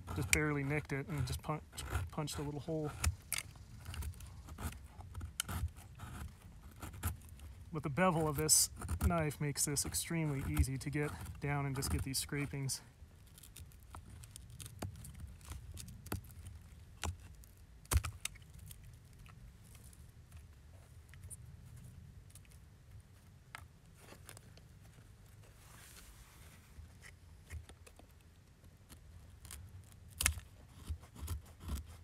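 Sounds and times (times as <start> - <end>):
knife scraping wood: 0.0 - 21.4, 23.6 - 32.0.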